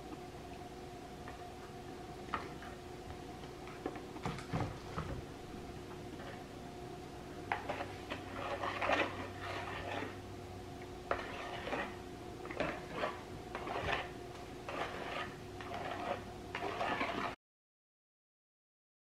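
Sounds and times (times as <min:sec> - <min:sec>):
spatula scraping plastic bowl: 0:07.5 - 0:10.3, 0:11.1 - 0:17.4.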